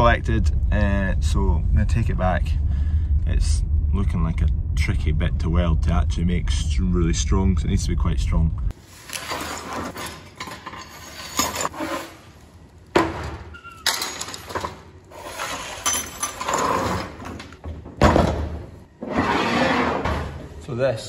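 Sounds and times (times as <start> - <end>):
metal tools clattering on workbench: 9.1 - 12.1, 13.0 - 17.6.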